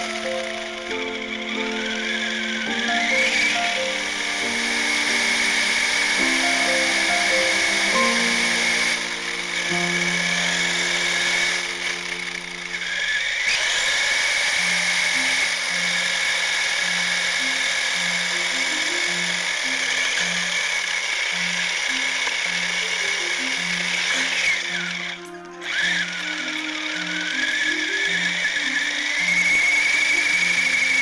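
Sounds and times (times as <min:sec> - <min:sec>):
rc car motor whine: 0:00.0 - 0:31.0.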